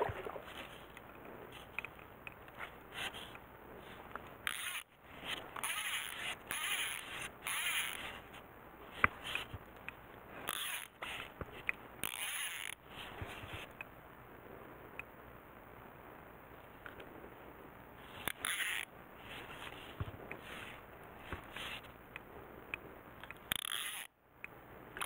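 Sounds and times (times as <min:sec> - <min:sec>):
rustling and scraping: 0:00.0 - 0:09.7, 0:10.3 - 0:13.7, 0:18.0 - 0:22.0.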